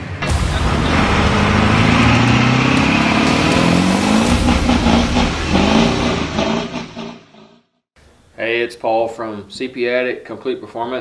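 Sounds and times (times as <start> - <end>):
vehicle engine accelerating: 0.0 - 7.4.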